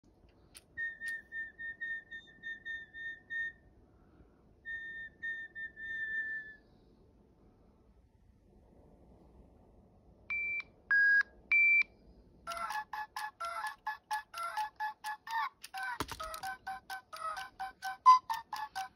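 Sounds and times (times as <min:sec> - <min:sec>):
high-pitched whistling: 0:00.7 - 0:03.7, 0:04.6 - 0:06.7.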